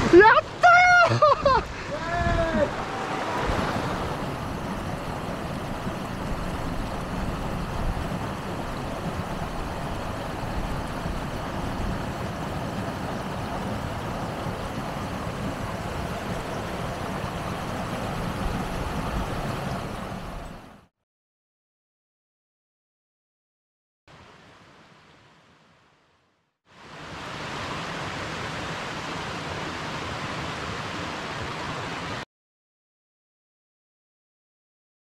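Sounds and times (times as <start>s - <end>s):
stream water running over rocks: 0.0s - 20.8s, 26.7s - 32.2s.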